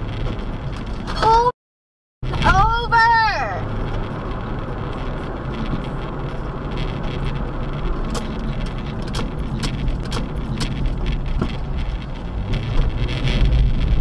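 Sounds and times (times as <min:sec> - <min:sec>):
car cabin road rumble: 0:00.0 - 0:01.5, 0:02.2 - 0:14.0
sharp clicks: 0:08.1 - 0:11.6.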